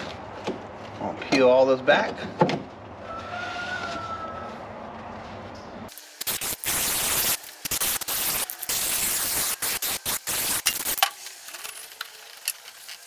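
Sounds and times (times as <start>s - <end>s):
aerosol can hissing: 5.9s - 11.1s.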